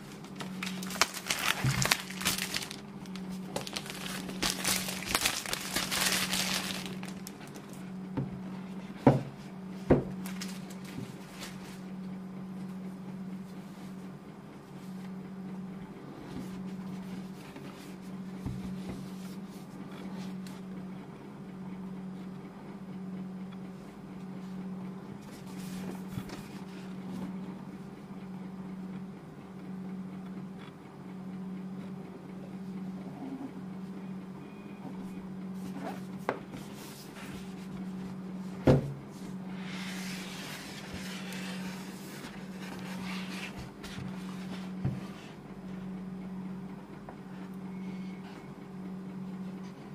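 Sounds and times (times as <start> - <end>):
low pulsing hum: 0.0 - 49.9
cardboard sliding and rustling: 39.5 - 45.4.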